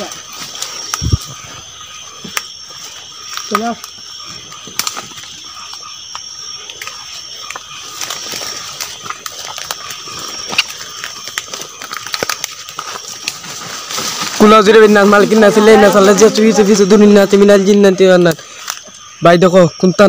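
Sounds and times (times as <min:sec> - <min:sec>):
snaps and rustles in undergrowth: 0:00.0 - 0:19.1
night insects trilling: 0:00.0 - 0:20.0.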